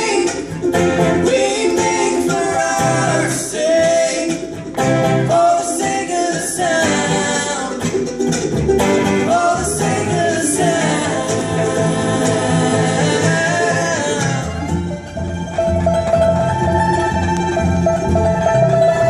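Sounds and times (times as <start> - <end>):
person singing: 0.0 - 8.2, 9.0 - 14.9
string band playing: 0.0 - 19.0.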